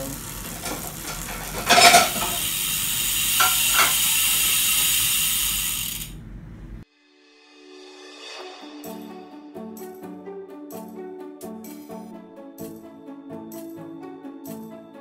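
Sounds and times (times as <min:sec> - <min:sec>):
bicycle chain whirring: 0:00.0 - 0:06.4.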